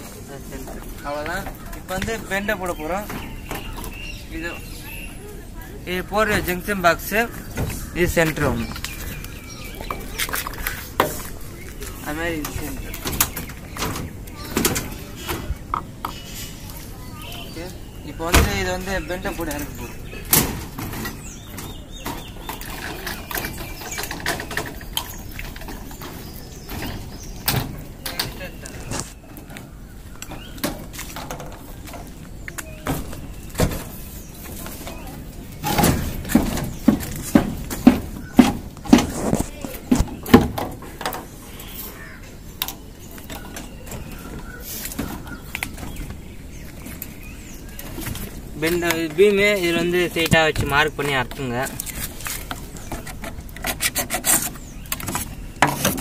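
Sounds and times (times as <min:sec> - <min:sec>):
plastic pipes clicking and knocking: 0:20.3 - 0:29.6, 0:47.8 - 0:56.0
faint bird calls: 0:38.1 - 0:49.8.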